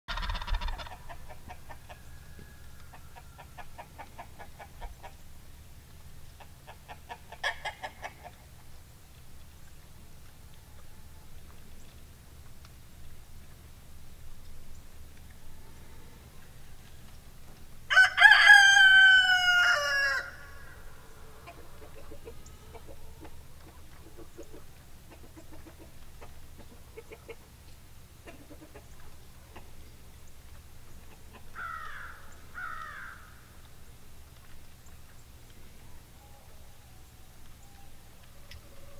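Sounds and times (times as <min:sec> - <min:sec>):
short falling fowl calls: 0:00.1 - 0:05.2, 0:17.9 - 0:23.5
loud fowl call: 0:17.9 - 0:21.9.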